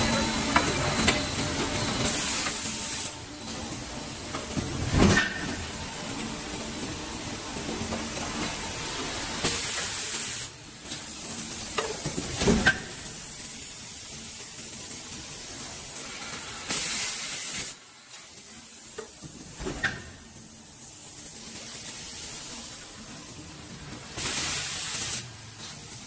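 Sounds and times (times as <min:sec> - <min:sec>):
loud spraying hiss bursts: 0:15.8 - 0:17.8, 0:24.1 - 0:26.0
steady hiss: 0:20.7 - 0:26.0.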